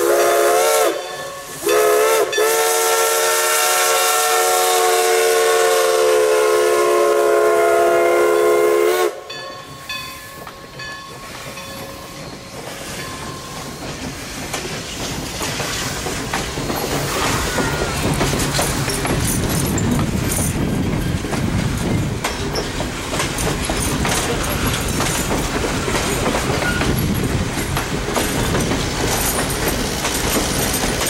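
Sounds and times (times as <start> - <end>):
steam whistle blast: 0.0 - 9.3
train coaches rolling past: 0.0 - 31.0.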